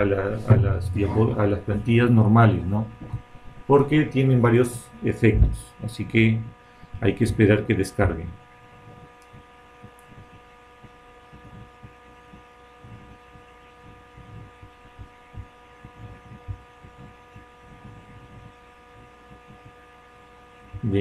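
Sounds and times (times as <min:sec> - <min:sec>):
faint low thumps: 0:00.0 - 0:03.7, 0:05.1 - 0:06.6, 0:08.2 - 0:19.9
faint whining tones: 0:00.0 - 0:21.0
low electrical hum: 0:00.0 - 0:21.0.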